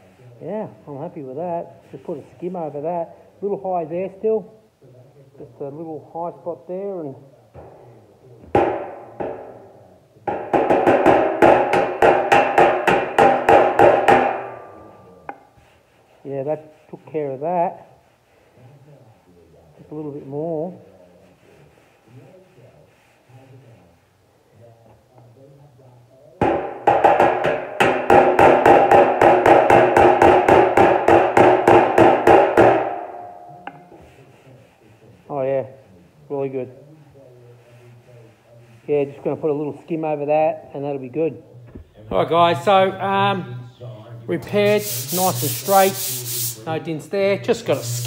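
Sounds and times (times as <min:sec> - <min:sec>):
hammer tapping sheet steel: 0:08.5 - 0:15.5, 0:26.4 - 0:34.1.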